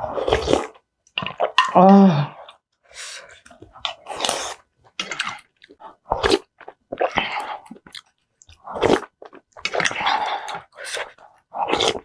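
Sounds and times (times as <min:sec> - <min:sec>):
chewing: 0:03.3 - 0:12.0.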